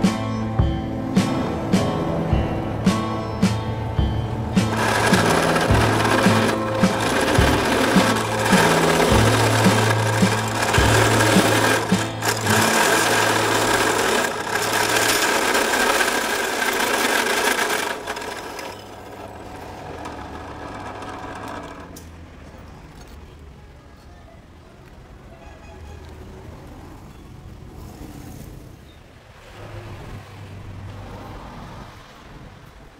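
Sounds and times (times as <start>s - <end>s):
background music with bass line: 0.0s - 15.1s
rough metalworking noise: 4.6s - 22.2s.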